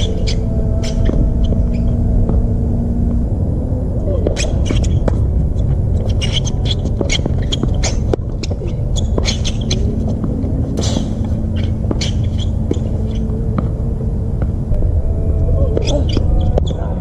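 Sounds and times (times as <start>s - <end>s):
low rumble: 0.0s - 17.0s
footsteps and shoe scuffs: 4.2s - 13.7s
shoe scraping on court: 6.0s - 13.2s.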